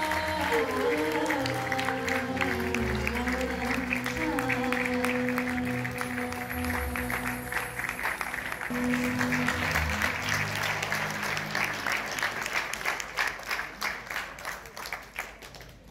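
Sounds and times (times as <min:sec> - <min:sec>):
audience applauding: 0:00.0 - 0:15.9.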